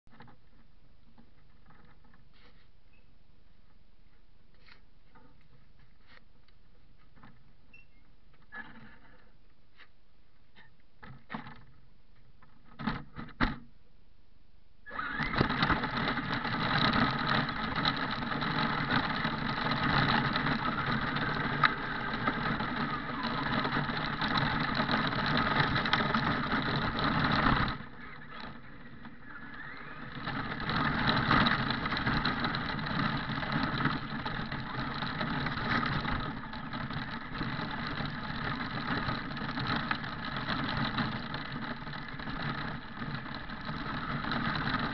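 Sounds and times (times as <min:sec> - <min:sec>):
toy car motor running: 0:14.9 - 0:44.9.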